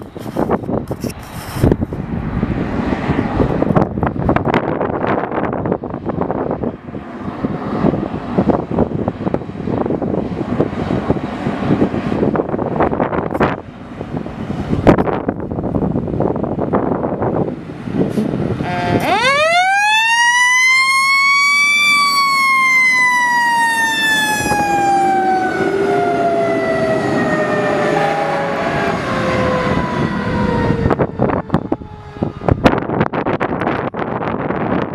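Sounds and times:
wind noise on microphone: 0.0s - 34.9s
fire engine siren winding: 18.6s - 33.4s.

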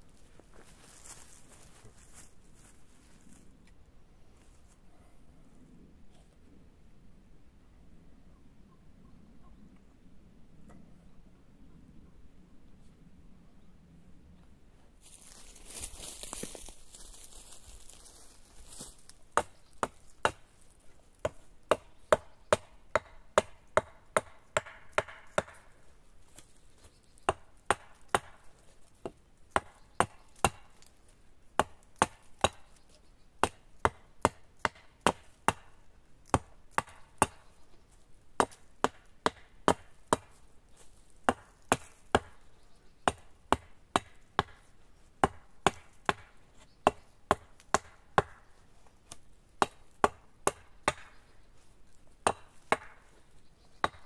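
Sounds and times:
hatchet chopping wood: 19.4s - 20.4s, 21.2s - 25.8s, 27.3s - 30.9s, 31.6s - 32.8s, 33.4s - 37.5s, 38.4s - 40.4s, 41.3s - 42.4s, 43.0s - 48.5s, 49.1s - 51.2s, 52.2s - 53.2s.

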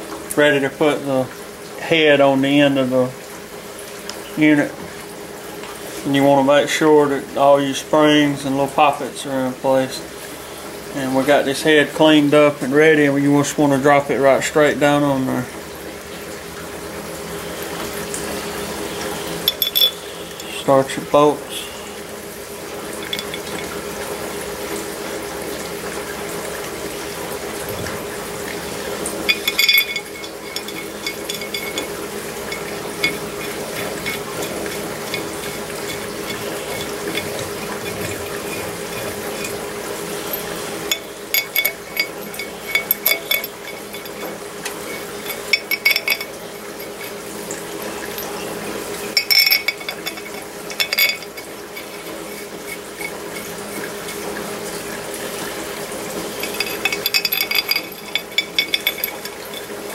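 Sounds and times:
steady background hum: 0.0s - 59.9s
metal bolts clinking: 19.4s - 20.6s, 23.0s - 23.8s, 29.2s - 48.4s, 49.1s - 54.2s, 56.3s - 59.9s.

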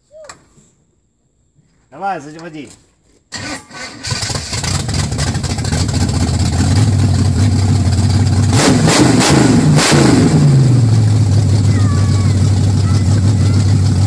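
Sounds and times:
engine starting: 3.3s - 5.3s
engine idling: 3.4s - 14.0s
engine revving: 3.4s - 14.0s.

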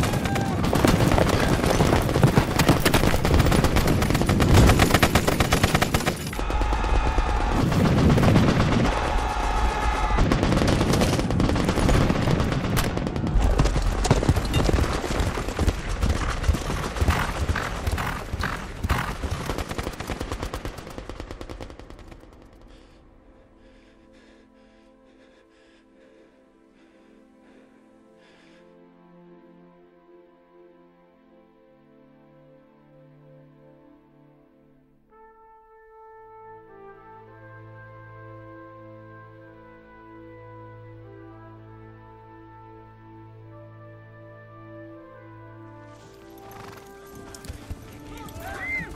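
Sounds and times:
machine-gun and rifle fire: 0.0s - 22.6s
faint music: 41.2s - 48.9s.

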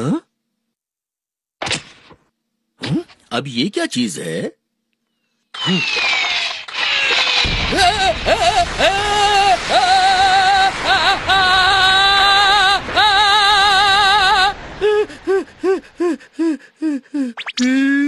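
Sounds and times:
short rising and falling vocal sounds: 5.6s - 16.5s
person singing with vibrato: 7.7s - 18.0s.

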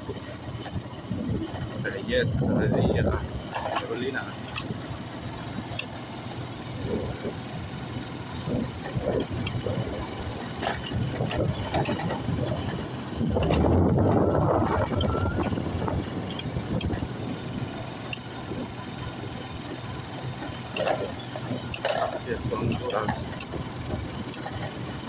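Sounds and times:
vehicle engine humming: 0.0s - 25.0s
clicks and rattles: 3.5s - 4.8s, 8.8s - 17.2s, 20.3s - 25.0s.

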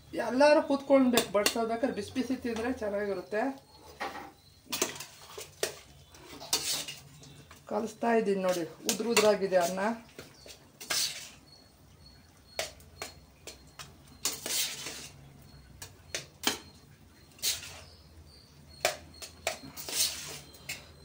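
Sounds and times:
spoon scraping and knocking pan: 0.7s - 7.7s, 8.3s - 11.5s, 12.5s - 18.0s.

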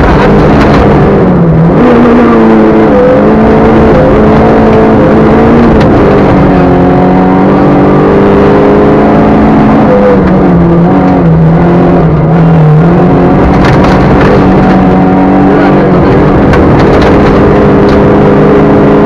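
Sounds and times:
rally car engine at high revs: 0.0s - 19.0s.

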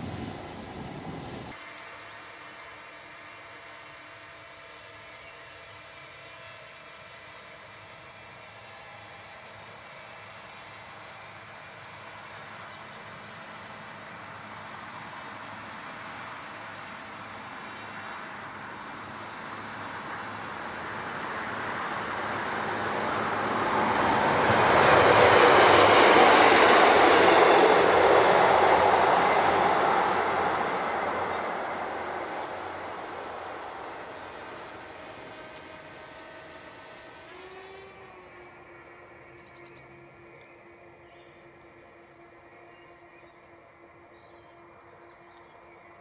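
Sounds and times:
train passing: 0.0s - 1.6s, 8.9s - 42.8s.

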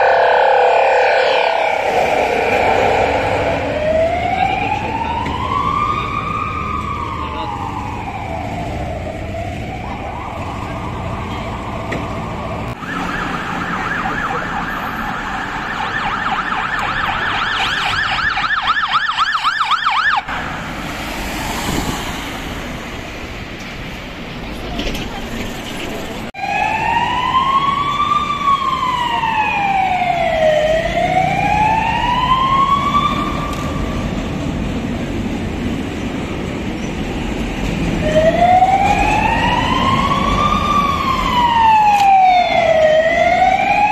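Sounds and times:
fast warbling siren: 0.0s - 11.9s, 12.8s - 20.3s, 26.4s - 33.9s, 38.0s - 43.9s
steady siren tone: 0.0s - 20.5s, 26.4s - 34.0s, 38.0s - 43.9s
ambulance siren wailing: 0.0s - 21.1s, 26.4s - 34.3s, 37.8s - 43.9s
city traffic noise: 0.0s - 43.9s.

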